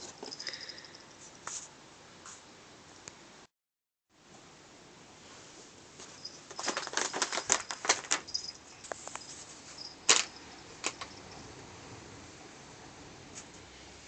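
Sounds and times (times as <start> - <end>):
plastic pouches crinkling: 6.0 - 11.2.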